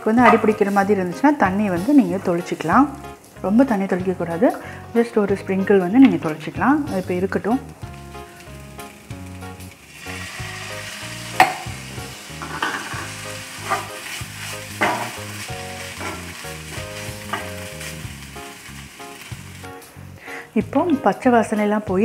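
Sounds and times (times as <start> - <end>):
vegetables sizzling in a frying pan: 0.1 - 21.0
spatula scraping a pan: 12.2 - 19.6.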